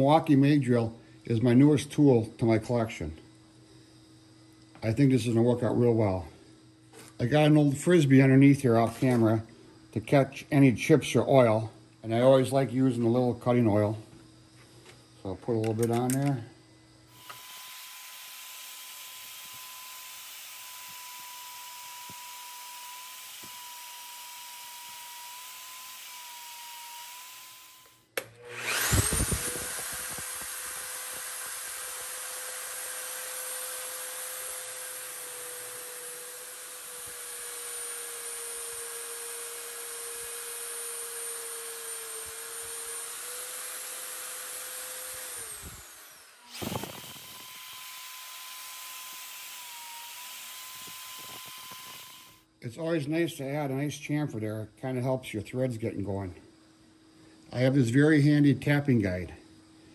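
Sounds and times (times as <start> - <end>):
drill cutting into steel plate: 17.1 - 52.4
drill press whining: 17.1 - 52.4.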